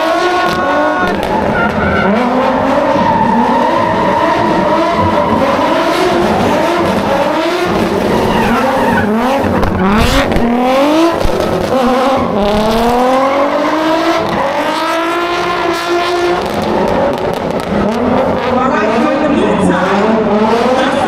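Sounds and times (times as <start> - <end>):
car engine revving hard: 0.0 - 21.0
tyres squealing: 0.6 - 10.6.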